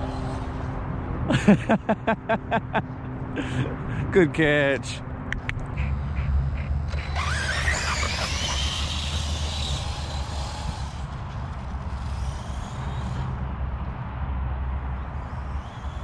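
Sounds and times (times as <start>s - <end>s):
electric motor whine: 0.0s - 0.8s, 6.8s - 13.8s
steady low rumble: 0.0s - 7.3s.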